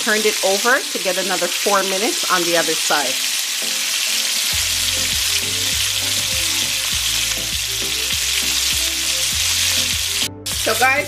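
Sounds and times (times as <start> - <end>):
steaks sizzling in a pan: 0.0 - 11.0
background music with steady beat: 3.6 - 11.0.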